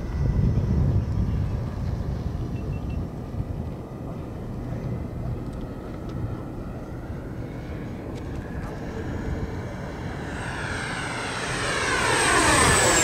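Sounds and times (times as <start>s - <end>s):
model jet fan rushing: 4.4s - 13.0s.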